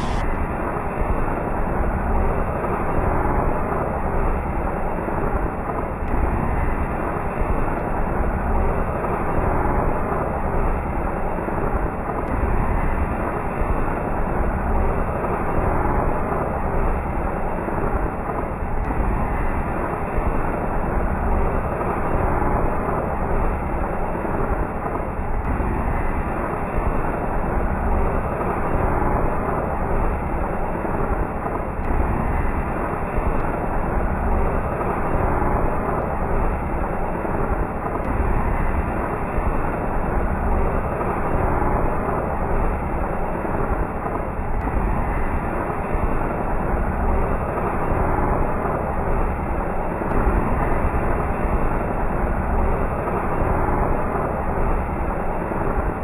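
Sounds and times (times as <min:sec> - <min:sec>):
spinning firework hissing: 0:00.0 - 0:00.8.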